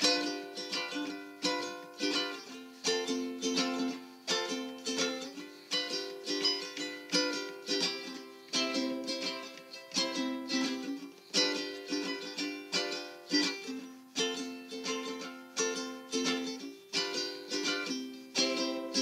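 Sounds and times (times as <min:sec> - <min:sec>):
strummed string instrument chords: 0:00.0 - 0:19.0.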